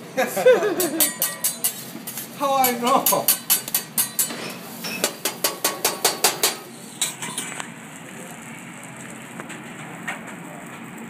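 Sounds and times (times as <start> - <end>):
eggs and rice sizzling: 0.0 - 11.0
metal spatula clacking on griddle: 0.8 - 7.5.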